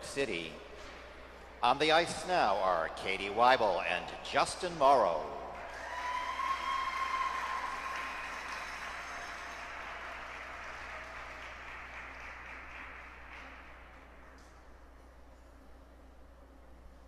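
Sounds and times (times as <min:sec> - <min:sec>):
audience applause: 0:05.6 - 0:13.9.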